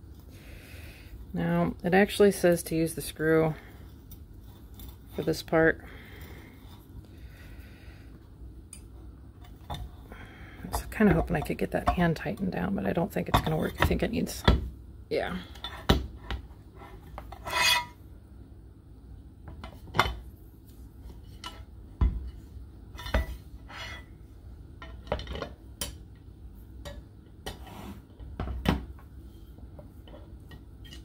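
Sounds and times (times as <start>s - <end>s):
metal rod scraping metal plate: 17.3s - 18.0s.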